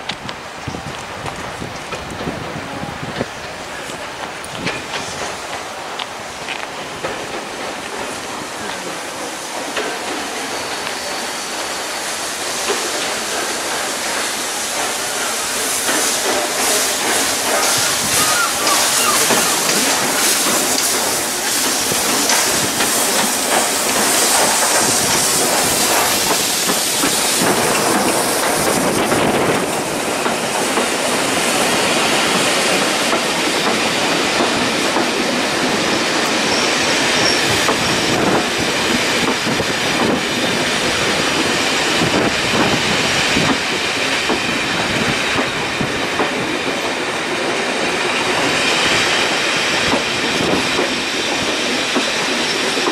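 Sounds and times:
steam train passing: 0:00.0 - 0:52.9
wheel squeal: 0:17.5 - 0:21.0, 0:36.4 - 0:38.1.

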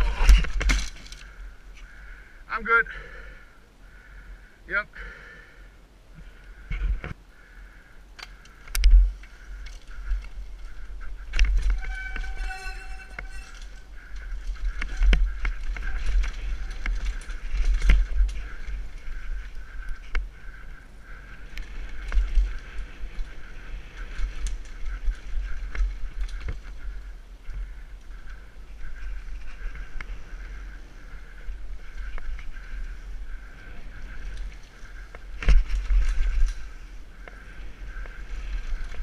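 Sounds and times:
bike frame and chain clattering: 0:00.0 - 0:01.4, 0:08.2 - 0:20.7, 0:21.4 - 0:39.0
wind rumbling on microphone: 0:00.0 - 0:02.5, 0:05.9 - 0:39.0
bike tyres on dirt and rock: 0:00.0 - 0:39.0
pitched squeal: 0:10.7 - 0:15.1.

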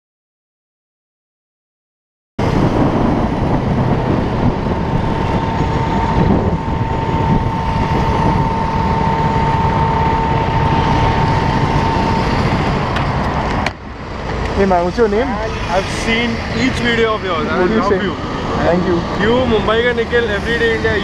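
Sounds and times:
thin steady whine: 0:02.4 - 0:21.0
wind noise: 0:02.4 - 0:21.0
motorcycle engine: 0:03.0 - 0:15.6.

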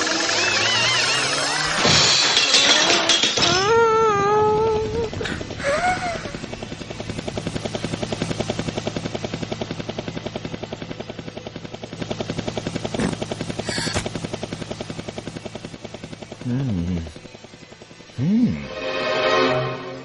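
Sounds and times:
fast chopping rotor whir: 0:00.0 - 0:20.0
sharp metallic clanks: 0:01.7 - 0:03.8.

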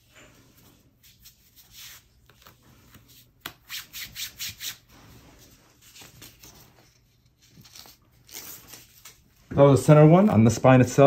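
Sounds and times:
hand rubbing tape on skin: 0:00.6 - 0:09.4.

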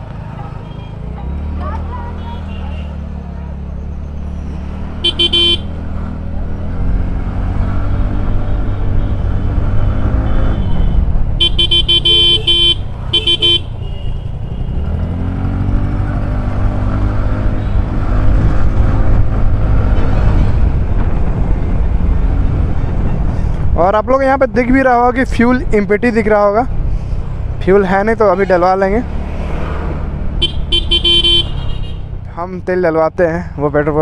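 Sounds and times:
vehicle horn honking: 0:05.0 - 0:05.7, 0:10.2 - 0:14.8, 0:30.4 - 0:32.1.

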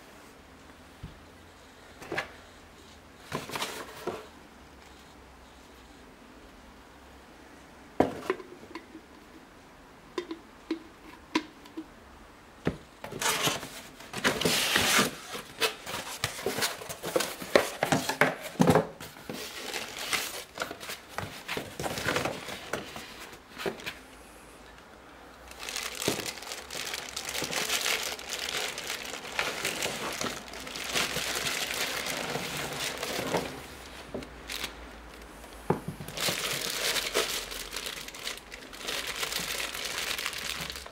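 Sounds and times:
plastic bag crinkling: 0:19.3 - 0:21.1, 0:25.4 - 0:35.3, 0:36.1 - 0:40.9.

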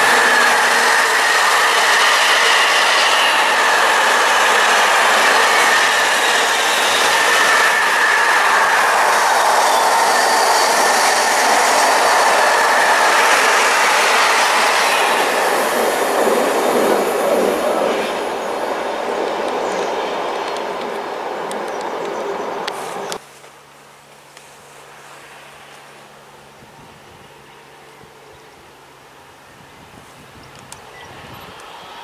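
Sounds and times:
high wheel squeal: 0:00.0 - 0:18.6
steel wheels rushing on rail: 0:00.0 - 0:23.2, 0:30.3 - 0:32.0.

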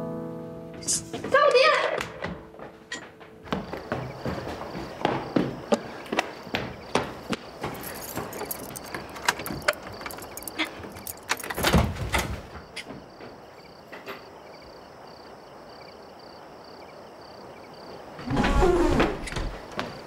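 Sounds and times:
door lock clicking and rattling: 0:07.8 - 0:12.3.

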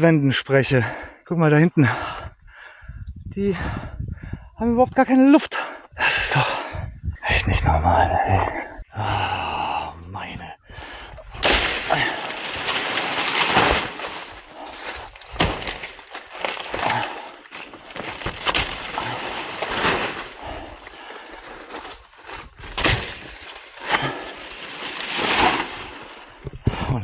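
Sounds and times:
chopping blows into stems: 0:11.3 - 0:20.6, 0:22.4 - 0:25.9
dry leaves rustling and crackling: 0:11.4 - 0:26.3.

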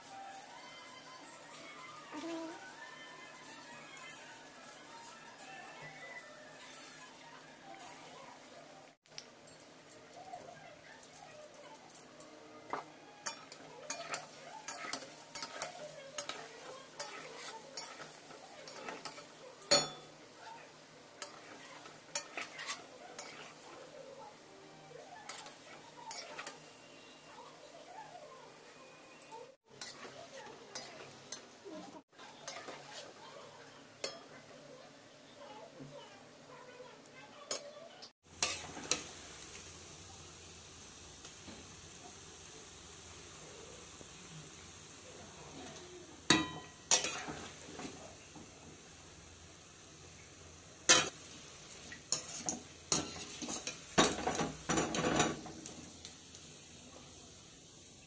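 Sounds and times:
frying in hot oil sizzling: 0:00.0 - 0:58.0
metal utensils scraping a pan: 0:12.7 - 0:24.0, 0:25.0 - 0:27.2, 0:29.7 - 0:33.4, 0:38.4 - 0:39.1, 0:45.7 - 0:48.1, 0:50.9 - 0:55.8
metal spoon clinking on wok: 0:13.2 - 0:20.2, 0:46.3 - 0:47.4.

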